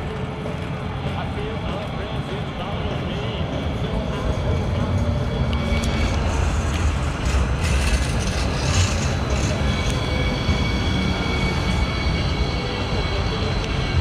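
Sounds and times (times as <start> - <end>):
light rail wheels rumbling: 0.0 - 14.0
thin high whine: 4.1 - 14.0.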